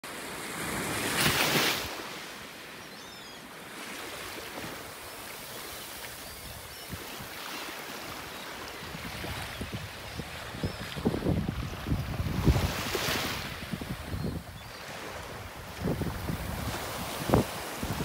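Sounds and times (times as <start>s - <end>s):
small waves lapping on shore: 0.1s - 18.0s
faint seabird calls: 2.5s - 12.2s
wind on microphone: 8.8s - 18.0s.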